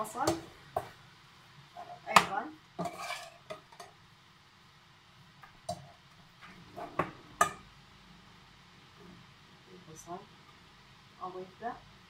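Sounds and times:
metal spoon scraping steel pot: 2.8s - 3.5s.

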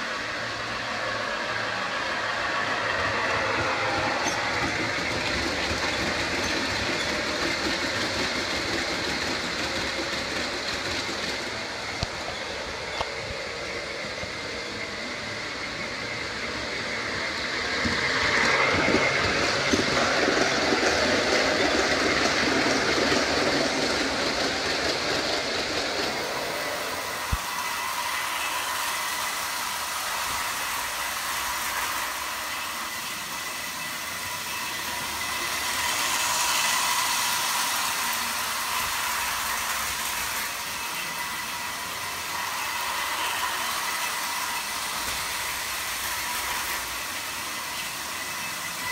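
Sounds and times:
light rolling clatter of model train: 0.0s - 48.9s
model train rattling on track: 0.0s - 48.9s.

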